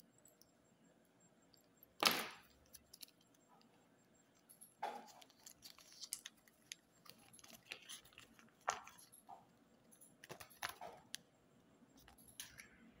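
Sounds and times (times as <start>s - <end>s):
plastic pieces clicking and tapping: 1.6s - 3.7s
candy wrapper crinkling: 2.2s - 3.5s, 4.9s - 9.2s, 10.1s - 11.2s.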